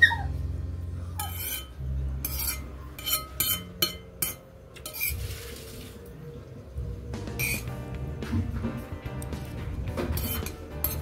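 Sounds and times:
metal spoon clinking on ceramic bowl: 2.3 - 5.1.

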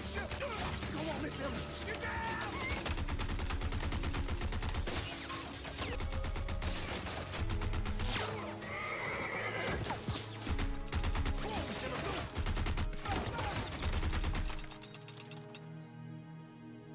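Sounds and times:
gatling gun firing rapidly: 2.2 - 8.5, 10.5 - 14.6
horse whinnying loudly: 8.6 - 10.0.

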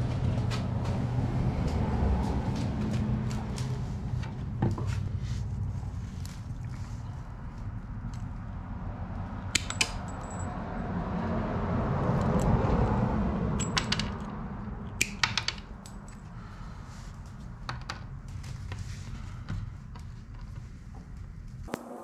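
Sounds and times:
metal pins knocking on wood: 13.6 - 14.3, 15.0 - 15.8
wire strippers snapping: 15.0 - 16.0.

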